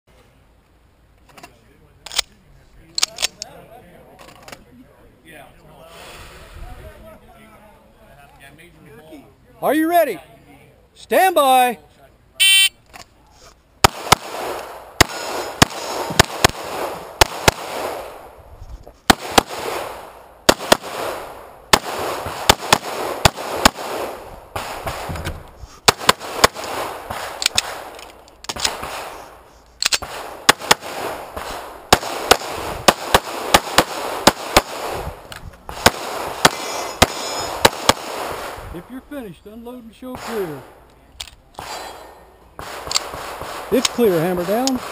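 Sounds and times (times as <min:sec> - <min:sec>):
pistol shots with ringing echo: 0:13.8 - 0:18.3, 0:19.1 - 0:25.1, 0:29.9 - 0:35.1, 0:35.7 - 0:38.6, 0:41.6 - 0:44.9.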